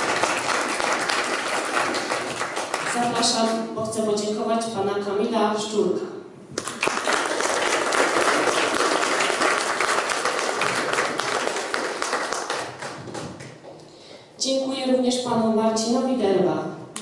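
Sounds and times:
audience applause: 0.0 - 3.0, 6.6 - 13.4.

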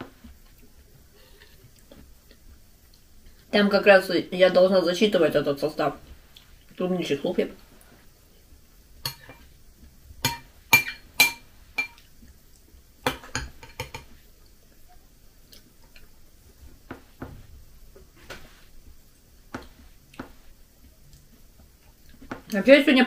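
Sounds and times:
spoon clinking glass bowl: 9.0 - 9.5, 10.2 - 12.0.

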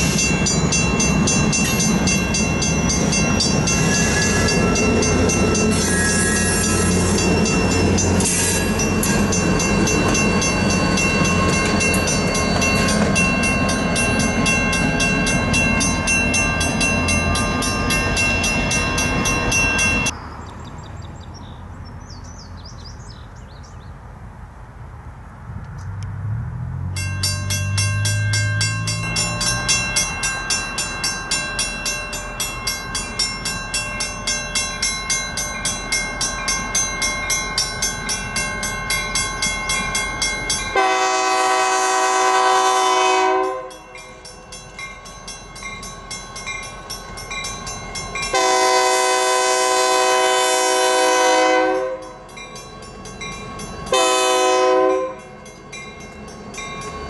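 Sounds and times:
crossing bell ringing: 0.0 - 20.2, 26.9 - 57.0
locomotive air horn blasts: 40.7 - 43.8, 48.3 - 52.2, 53.9 - 55.3.

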